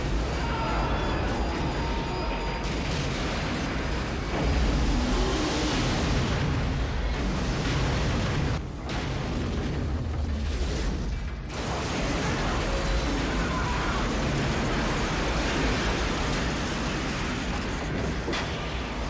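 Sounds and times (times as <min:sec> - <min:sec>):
crashing and grinding metal: 0:00.0 - 0:19.0.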